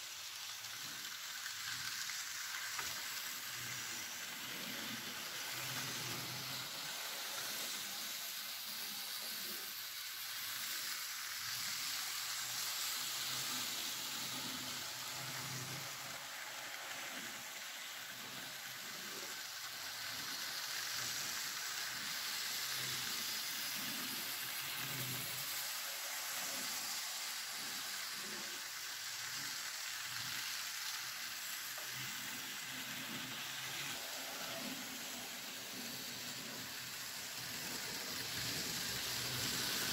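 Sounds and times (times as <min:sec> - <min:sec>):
model trains rattling on track: 0:00.0 - 0:39.9.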